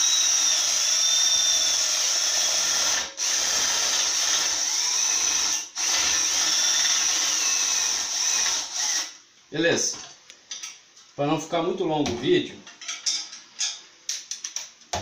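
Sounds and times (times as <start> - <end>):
cordless drill whining: 0.0 - 9.2.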